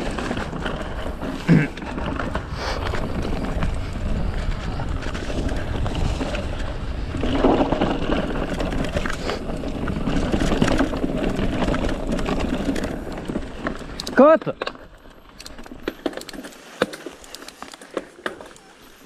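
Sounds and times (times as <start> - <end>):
wind buffeting microphone: 0.0 - 13.9
bike rattling over bumps: 0.0 - 19.0
tyres rumbling on dirt trail: 0.0 - 19.0.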